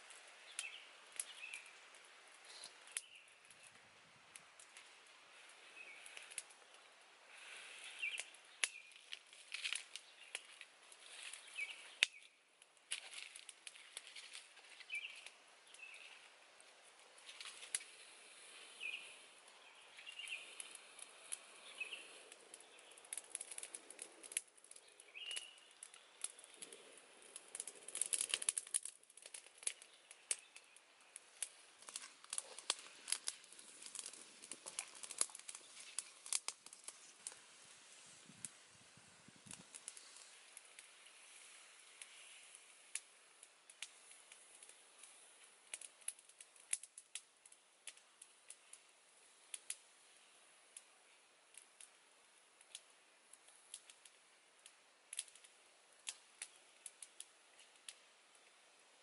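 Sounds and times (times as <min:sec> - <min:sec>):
small birds chirping: 0:00.0 - 0:03.8, 0:04.6 - 0:37.4
wood fire crackling and popping: 0:00.0 - 0:59.0.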